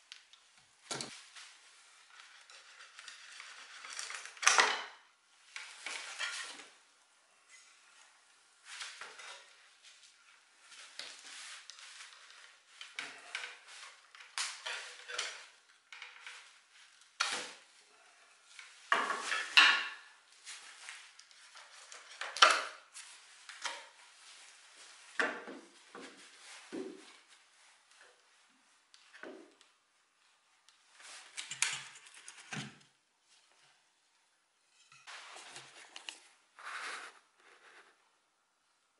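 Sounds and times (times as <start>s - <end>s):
wooden frame parts clattering: 12.8s - 16.5s.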